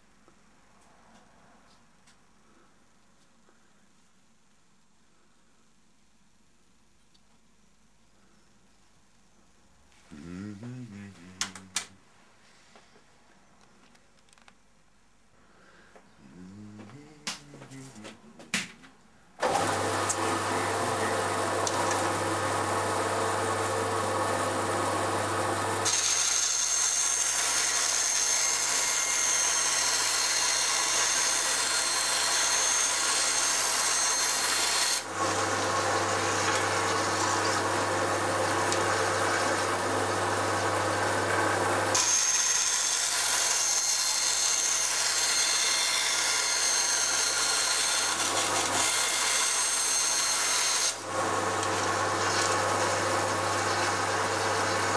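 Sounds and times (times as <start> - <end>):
bandsaw motor hum: 10.1 - 11.9, 19.4 - 54.9
saw blade cutting with rasping hiss: 25.8 - 37.7, 41.9 - 54.9.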